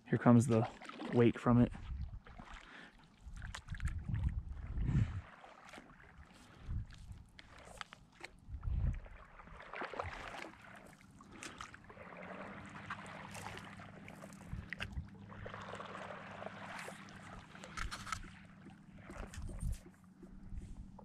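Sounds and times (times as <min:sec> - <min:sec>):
water lapping against board: 0:00.2 - 0:21.0
faint low hum: 0:12.3 - 0:21.0.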